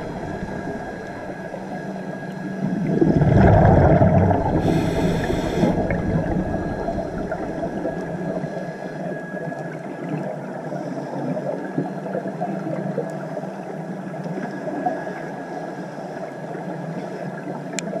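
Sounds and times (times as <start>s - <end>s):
fine crackle: 0.0s - 9.9s
muffled underwater rush: 0.0s - 10.7s.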